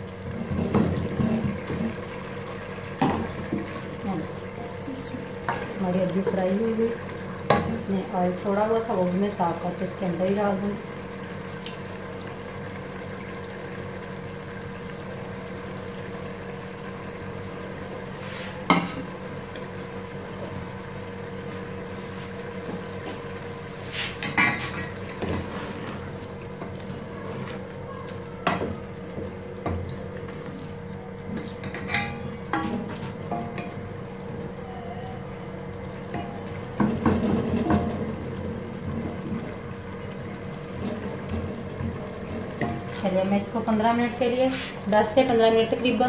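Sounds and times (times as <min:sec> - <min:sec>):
gas stove hum: 0:00.0 - 0:46.0
utensils knocking on metal pot: 0:31.6 - 0:33.8.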